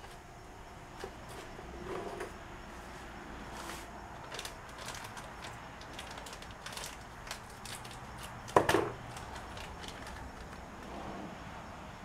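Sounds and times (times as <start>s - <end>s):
hands rustling packaging: 3.5s - 10.8s.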